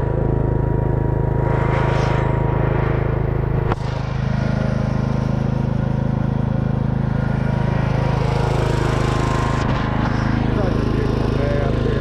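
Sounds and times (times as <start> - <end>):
lawn tractor engine running: 0.0 - 12.0.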